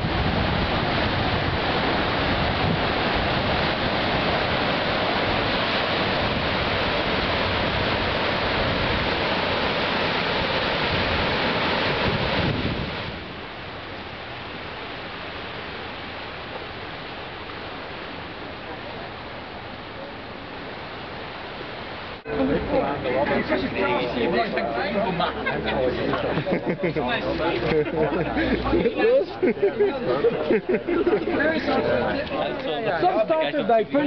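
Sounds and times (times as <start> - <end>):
wind buffeting microphone: 0.0 - 14.0
surf washing against rocks: 0.0 - 34.0.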